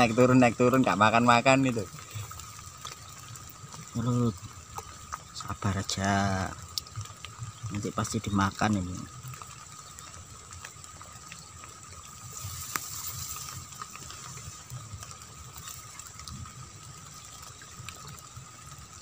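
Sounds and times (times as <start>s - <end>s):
light rain on water: 0.0s - 19.0s
small drop ticks: 6.4s - 8.0s, 8.6s - 19.0s.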